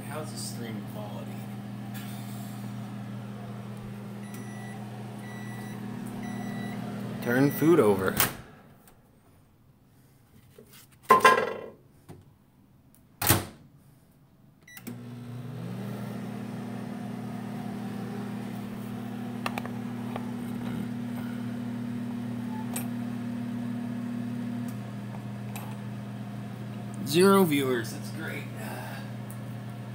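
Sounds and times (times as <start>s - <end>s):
microwave oven humming: 0.0s - 8.8s, 14.6s - 29.9s
short beep: 4.2s - 6.8s.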